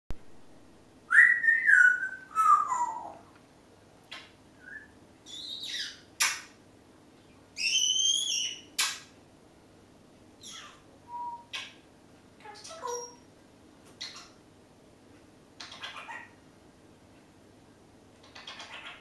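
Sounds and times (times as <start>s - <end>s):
parrot whistling: 1.1s - 3.2s, 7.6s - 8.6s, 10.4s - 11.7s.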